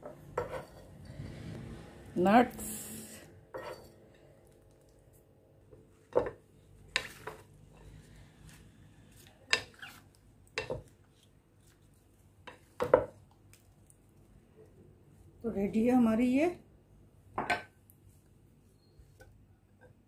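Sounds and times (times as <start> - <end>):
spatula stirring in glass bowl: 0.1 - 1.0.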